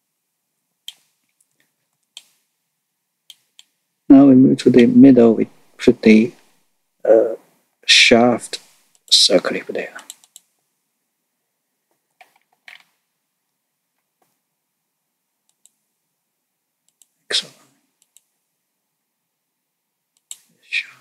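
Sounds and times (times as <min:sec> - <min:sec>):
computer mouse clicks: 0:10.0 - 0:10.5, 0:15.5 - 0:15.8, 0:16.9 - 0:17.2, 0:18.0 - 0:18.3, 0:20.2 - 0:20.5.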